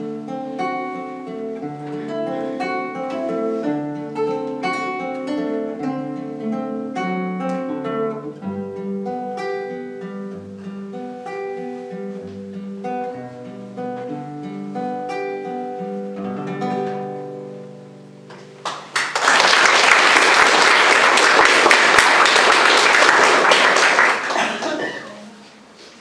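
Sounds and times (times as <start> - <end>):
classical guitar duet: 0.0 - 19.0
audience applause: 18.6 - 25.3.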